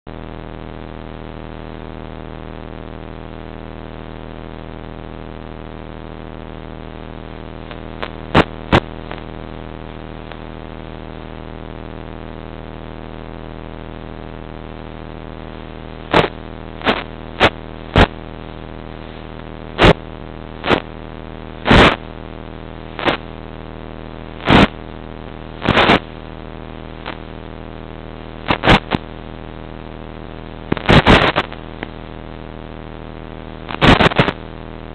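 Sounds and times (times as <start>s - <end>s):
radio static crackles: 0.1s - 34.9s
steady electrical buzz: 0.1s - 34.9s.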